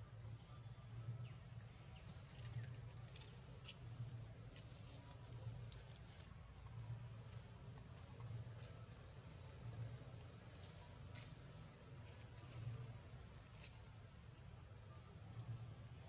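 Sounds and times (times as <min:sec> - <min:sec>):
faint ticks: 0:04.5 - 0:06.3.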